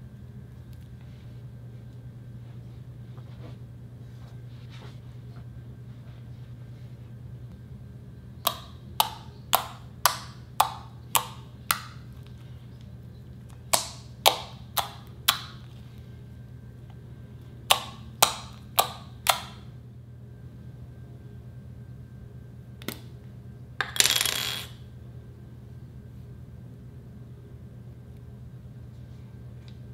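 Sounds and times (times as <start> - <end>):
fingers popping slime: 8.4 - 12.0, 13.7 - 15.6, 17.7 - 19.6.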